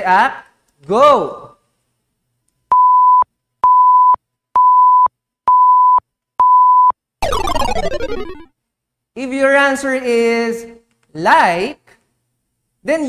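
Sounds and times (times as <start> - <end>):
electronic beeps: 5.6 - 8.5
descending multi-tone sound effect: 7.2 - 8.5.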